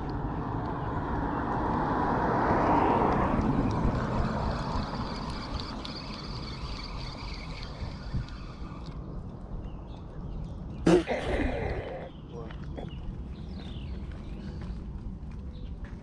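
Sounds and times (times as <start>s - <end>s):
vehicle passing by: 0.4s - 8.8s.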